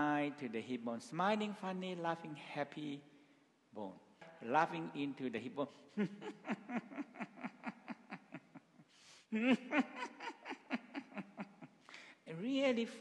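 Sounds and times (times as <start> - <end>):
man chuckling softly: 5.9 - 12.1
breath in: 8.9 - 9.3, 11.8 - 12.3.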